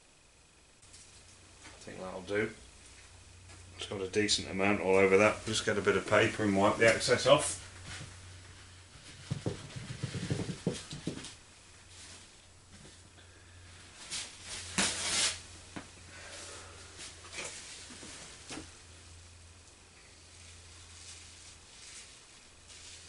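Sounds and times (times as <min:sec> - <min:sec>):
steady low hum: 0:00.0 - 0:23.0
paper towel rustling: 0:20.2 - 0:23.0.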